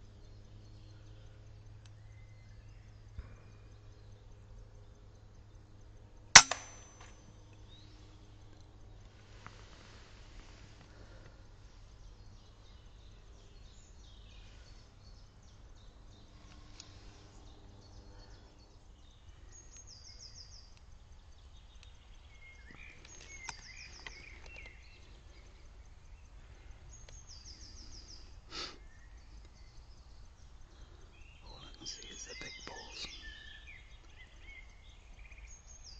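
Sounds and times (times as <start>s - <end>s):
low steady hum: 0.0s - 35.9s
sharp click: 6.4s - 7.2s.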